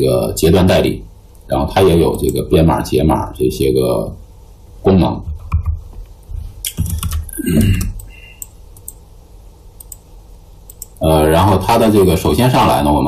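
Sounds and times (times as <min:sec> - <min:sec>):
faint steady hum: 0:00.0 - 0:13.0
computer clicks: 0:06.6 - 0:09.0, 0:09.8 - 0:11.0.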